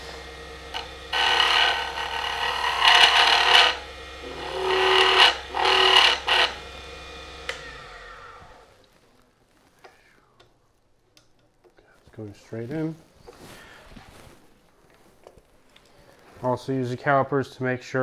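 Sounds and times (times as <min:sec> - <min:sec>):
lathe humming: 0:00.0 - 0:08.8
chisel scraping with ringing tone: 0:00.7 - 0:06.7.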